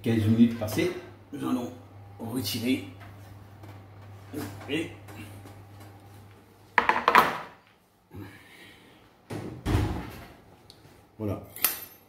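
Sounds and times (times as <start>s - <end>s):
oven door shutting with thud: 9.3s - 10.2s.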